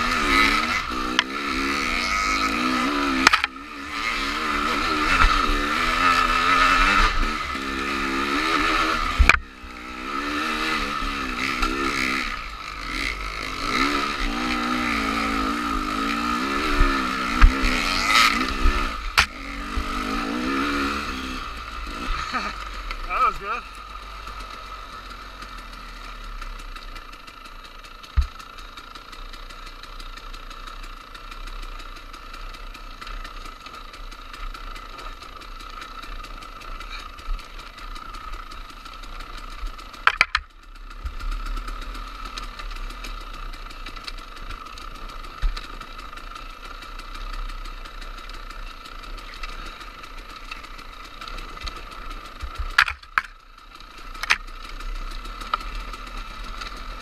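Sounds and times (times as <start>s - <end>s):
dirt bike engine running: 0.0s - 57.0s
knocks over rough ground: 28.1s - 28.4s, 52.4s - 53.4s.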